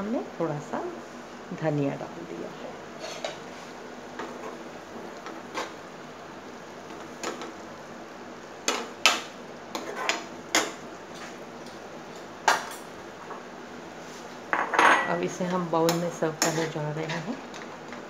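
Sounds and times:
spoon scraping frying pan: 3.0s - 3.5s, 9.7s - 11.4s, 16.4s - 17.3s.

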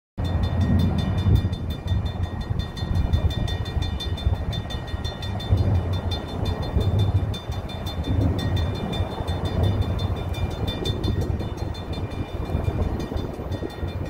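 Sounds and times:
diesel locomotives rumbling: 0.2s - 14.0s.

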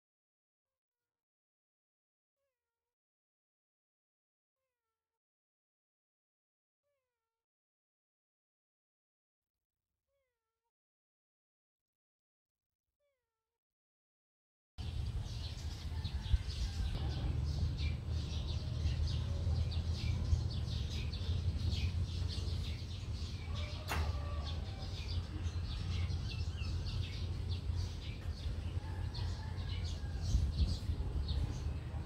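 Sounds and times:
birds chirping: 14.8s - 32.0s
low rumble: 14.8s - 32.0s.

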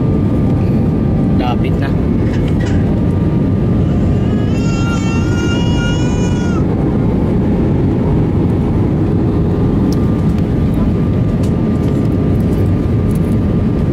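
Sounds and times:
airplane cabin rumble: 0.0s - 13.9s
high drawn-out cry: 3.8s - 6.7s.

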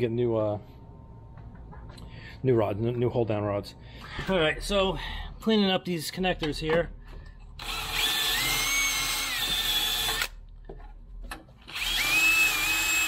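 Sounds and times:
drill spinning wire wheel: 7.6s - 10.3s, 11.7s - 13.0s.

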